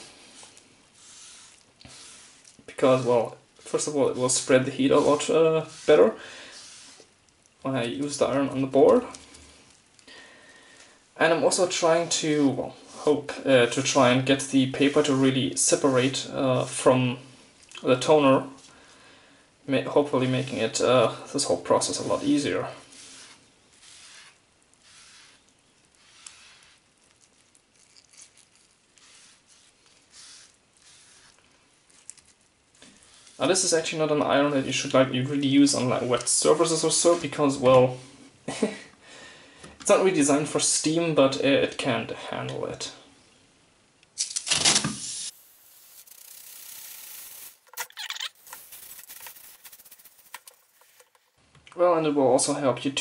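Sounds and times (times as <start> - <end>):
wet cloth hissing on hot board: 0.0 - 7.2, 22.0 - 26.9, 29.0 - 31.4, 45.0 - 47.7.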